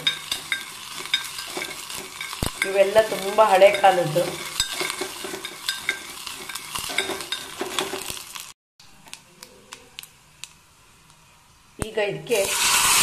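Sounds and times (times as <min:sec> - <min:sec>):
metal spoon scraping a pot: 0:00.0 - 0:08.2
spoon clinking against pot: 0:00.0 - 0:08.2
spices sizzling in oil: 0:00.0 - 0:13.0.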